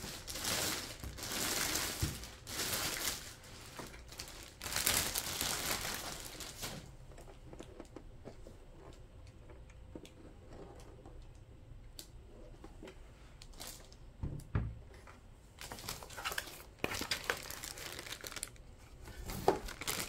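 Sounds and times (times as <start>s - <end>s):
plastic bag crinkling: 0.0s - 7.8s, 15.6s - 20.0s.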